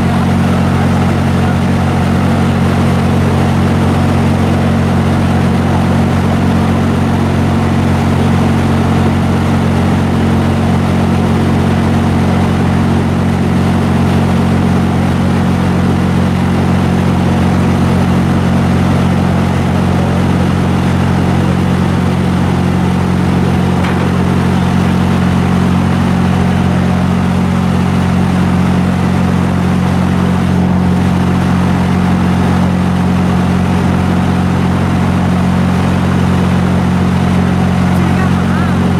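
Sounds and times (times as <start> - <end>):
wood chipper engine drone: 0.0 - 38.9.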